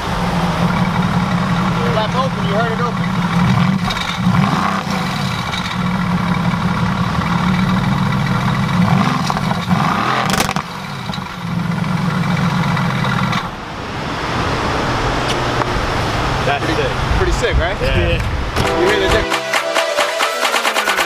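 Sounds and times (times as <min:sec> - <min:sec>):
sharp exhaust crack: 0:00.0 - 0:13.6
car engine idling and revving: 0:00.0 - 0:19.2.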